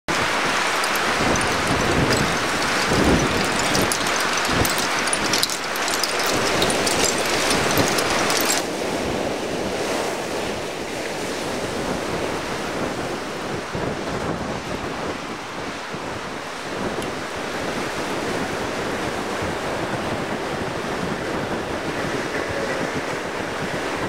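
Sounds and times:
sea surf washing ashore: 0.1 - 9.0
wind buffeting microphone: 0.1 - 9.4.

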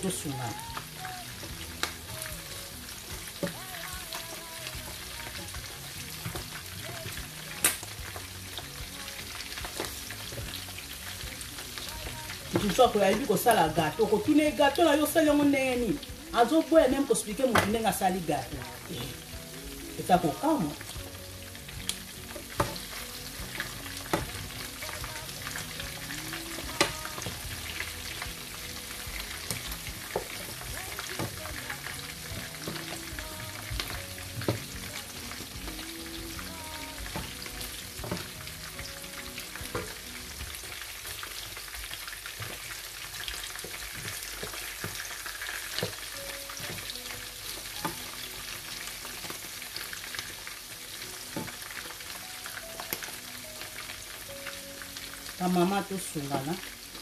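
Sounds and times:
chicken sizzling in oil: 0.0 - 57.0
spatula tapping and scraping pan: 22.3 - 24.4, 42.3 - 45.1.

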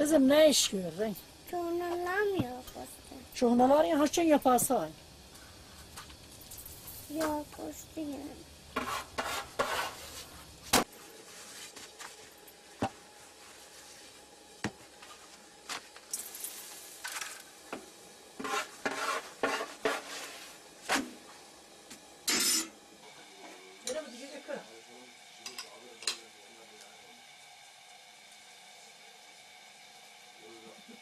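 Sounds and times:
sharp knocks on griddle: 14.6 - 14.8.

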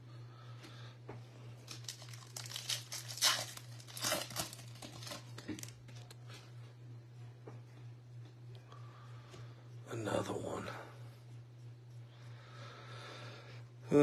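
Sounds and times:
foil wrapper crinkling and tearing: 1.6 - 6.1.

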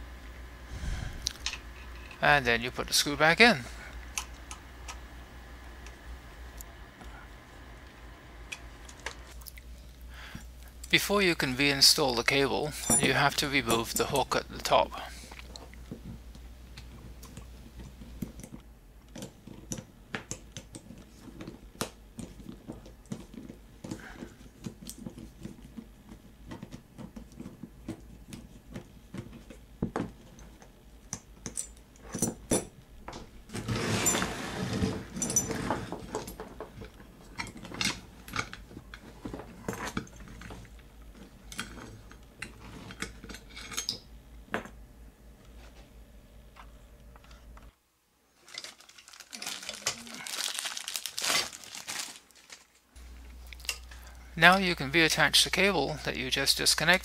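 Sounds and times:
steel hardware clinking: 12.7 - 14.4.

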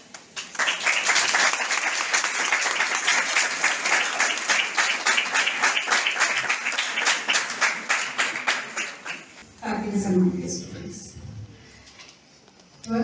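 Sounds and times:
people applauding: 0.0 - 9.4.

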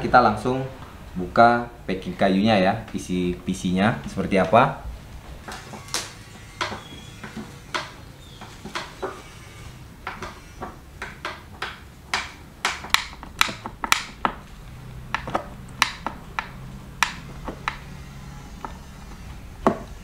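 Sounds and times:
metal clicks and knocks on wood: 10.0 - 17.9.

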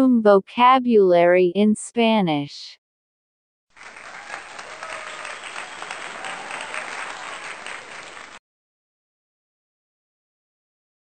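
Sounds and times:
crowd applause: 3.8 - 8.4.

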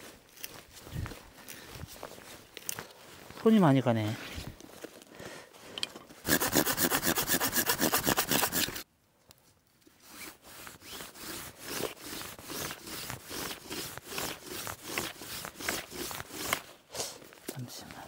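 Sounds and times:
wood rasping by hand: 6.2 - 8.8, 10.1 - 16.7.

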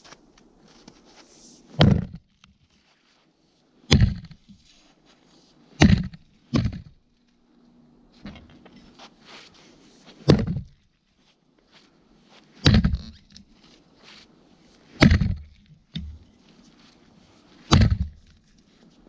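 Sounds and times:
axe chopping into log: 1.8 - 2.2, 3.9 - 4.4, 5.8 - 7.0, 10.2 - 10.8, 12.6 - 13.2, 15.0 - 16.2, 17.6 - 18.4.

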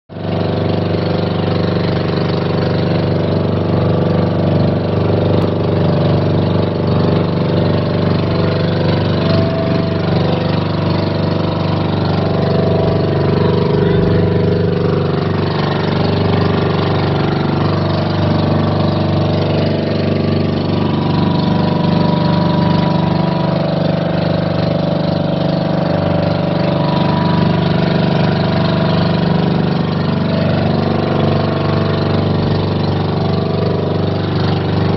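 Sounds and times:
boat engine droning: 0.1 - 34.9.

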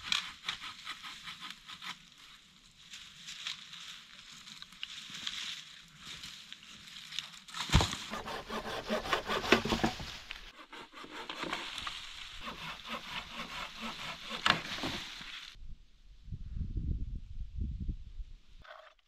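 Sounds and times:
dry leaves crunching: 2.7 - 8.1.

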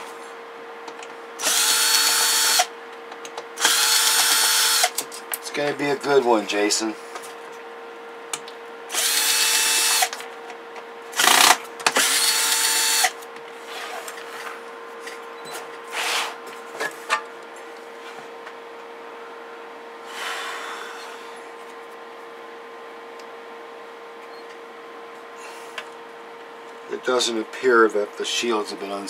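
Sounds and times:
power screwdriver whine: 1.4 - 2.7, 3.6 - 5.0, 8.9 - 10.2, 11.2 - 14.0.

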